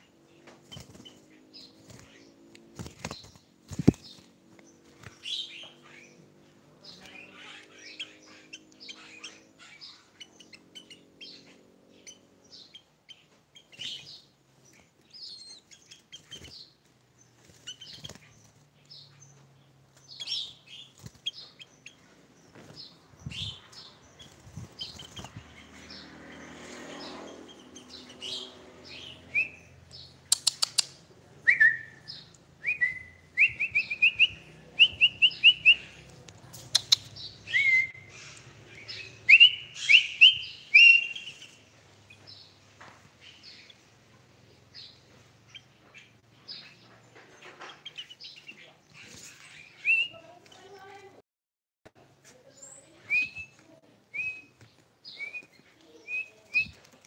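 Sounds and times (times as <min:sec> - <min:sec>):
bird chirping and whistling: 0:27.5 - 0:29.7, 0:31.5 - 0:35.9, 0:36.7 - 0:41.6, 0:49.6 - 0:50.2, 0:53.1 - 0:53.6, 0:55.1 - 0:56.8
sharp clicks: 0:30.2 - 0:31.0, 0:36.3 - 0:37.2.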